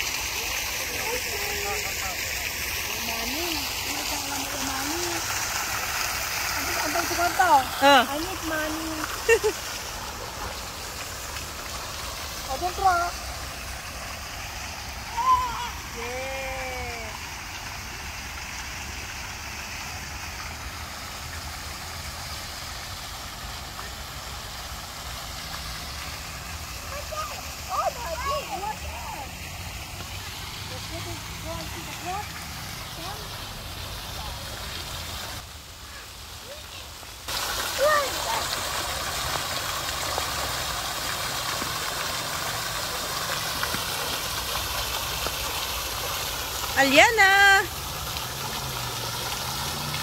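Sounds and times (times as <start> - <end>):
fountain water splashing: 0.0 - 50.0.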